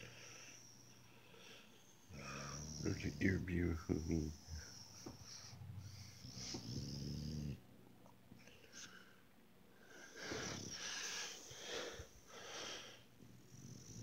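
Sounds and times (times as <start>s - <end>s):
puppy snoring: 1.8s - 7.6s, 10.1s - 11.4s, 13.4s - 14.0s.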